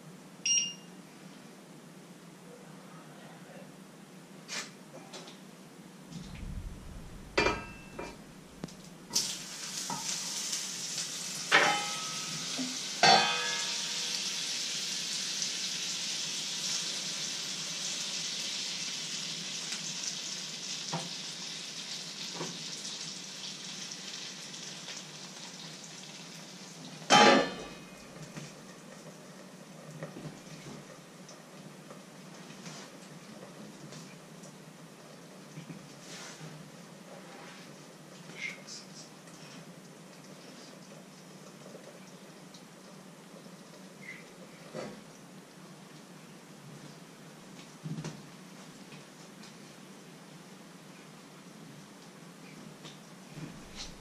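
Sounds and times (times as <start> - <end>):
batter sizzling in a frying pan: 6.2 - 34.2, 53.3 - 54.0
metal clanks of pan and utensils: 7.4 - 8.2, 9.1 - 10.2, 11.4 - 14.3, 27.1 - 27.9.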